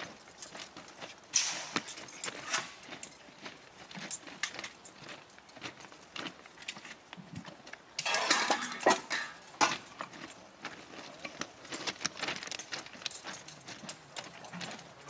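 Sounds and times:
footsteps on ballast: 0.0s - 15.0s
metal tools clinking and scraping: 1.1s - 3.3s, 8.0s - 10.4s, 12.4s - 15.0s.

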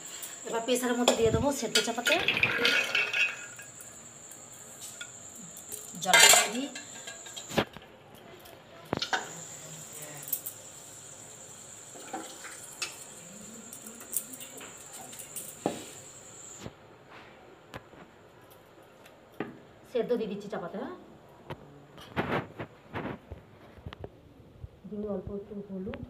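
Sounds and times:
metal pots clinking and clattering: 1.0s - 3.9s, 4.9s - 7.5s, 11.9s - 13.1s.

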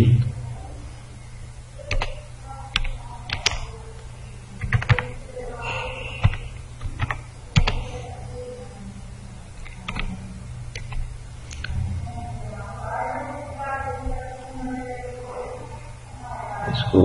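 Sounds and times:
steady low hum: 0.0s - 17.0s
typing on computer keyboard: 1.9s - 3.6s, 4.6s - 5.2s, 6.2s - 7.8s, 9.6s - 10.1s.

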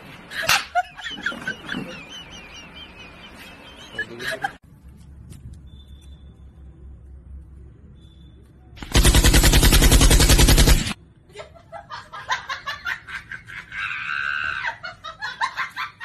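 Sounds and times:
laughter: 0.3s - 4.6s, 11.3s - 16.0s
machine-gun fire: 8.8s - 11.0s.

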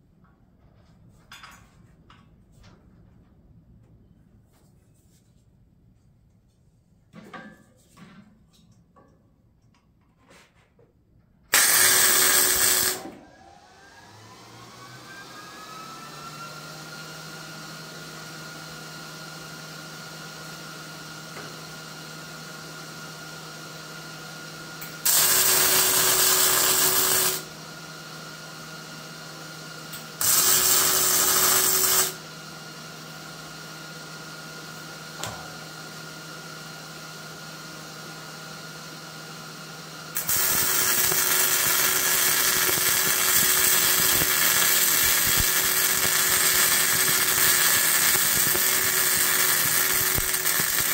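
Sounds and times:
welder arc welding: 11.5s - 13.1s, 24.9s - 27.6s, 29.9s - 32.2s, 40.1s - 50.9s
welder click: 11.5s - 13.2s, 40.2s - 50.9s
welder humming: 11.5s - 16.6s, 24.8s - 27.6s, 29.9s - 32.4s, 40.1s - 50.9s.

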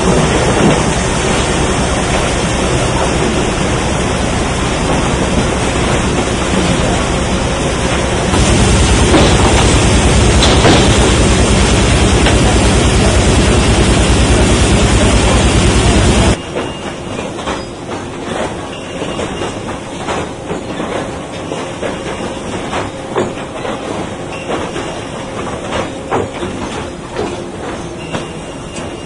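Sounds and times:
conveyor machinery running: 0.0s - 29.0s
dense machine noise with low pulse: 0.0s - 29.0s.

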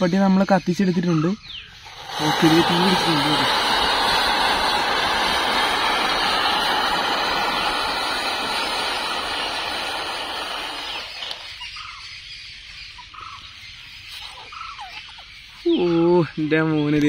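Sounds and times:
matches flaring with hiss: 1.8s - 11.6s.

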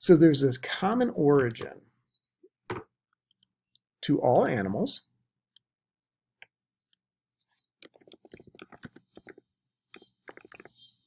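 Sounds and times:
computer keyboard typing: 7.8s - 10.8s.

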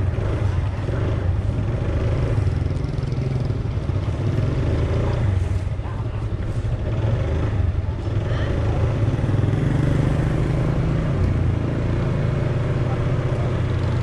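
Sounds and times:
motorbike engine cruising: 0.0s - 14.0s
street noise: 0.0s - 14.0s.

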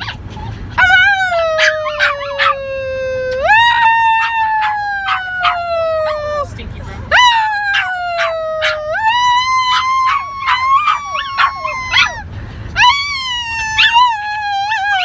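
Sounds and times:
dog yips: 0.0s - 6.4s, 7.1s - 15.0s
small dogs howling: 0.8s - 6.5s, 7.1s - 15.0s.

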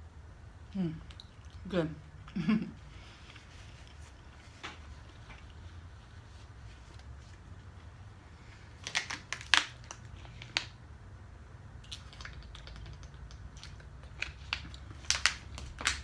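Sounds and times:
plastic bottle crinkling: 8.8s - 10.8s, 11.9s - 16.0s.

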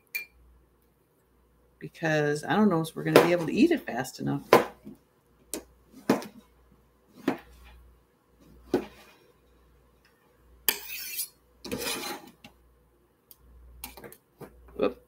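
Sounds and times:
knife scraping across board: 10.7s - 12.4s.

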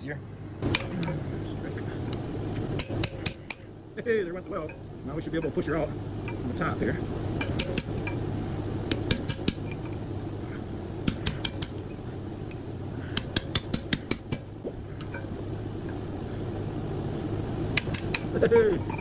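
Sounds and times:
electric motor hum: 0.0s - 19.0s
steel bar clinking on metal: 7.4s - 8.2s, 17.8s - 19.0s.

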